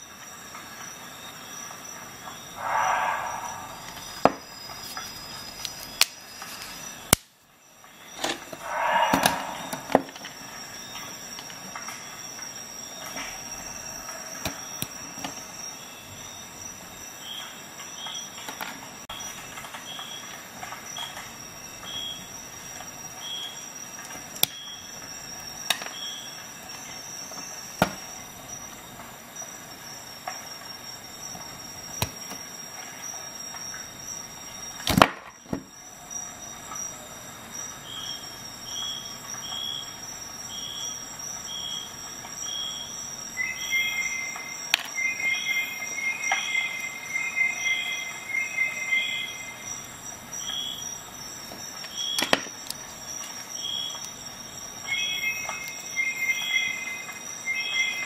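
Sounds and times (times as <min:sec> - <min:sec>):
high-pitched whine: 0:02.2 - 0:05.7, 0:08.4 - 0:11.0.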